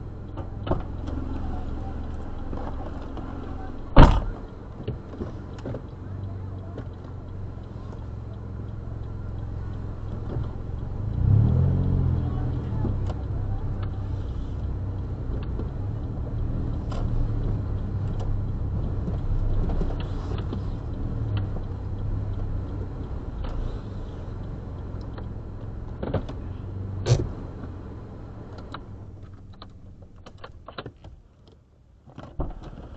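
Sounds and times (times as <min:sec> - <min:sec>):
car engine rumbling: 0:00.0 - 0:32.9
light clicks and knocks: 0:00.2 - 0:32.9
sharp click: 0:27.0 - 0:27.8.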